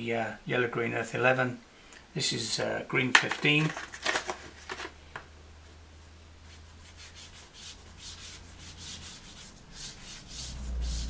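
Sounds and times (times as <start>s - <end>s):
pastel scratching on paper: 6.5s - 11.0s.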